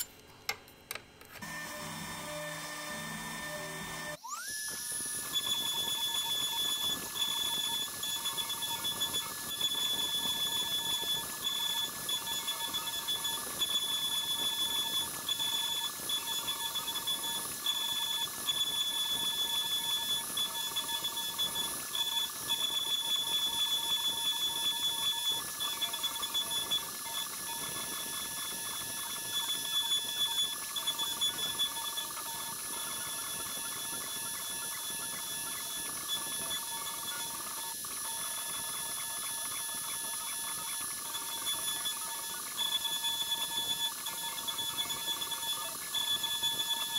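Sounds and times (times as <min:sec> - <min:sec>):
router spindle whine: 0:01.4 - 0:46.9.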